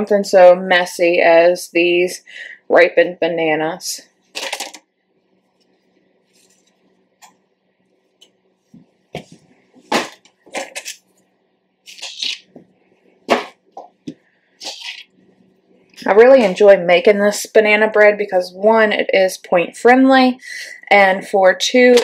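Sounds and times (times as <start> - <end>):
banana peel rustling: 11.9 - 12.6.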